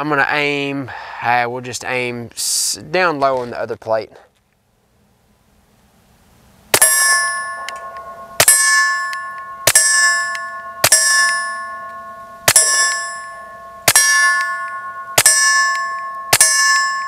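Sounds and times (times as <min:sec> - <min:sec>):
steel plate target ringing: 0:06.7 - 0:17.0
pistol shots: 0:06.8 - 0:11.9, 0:12.5 - 0:13.2, 0:13.8 - 0:17.0.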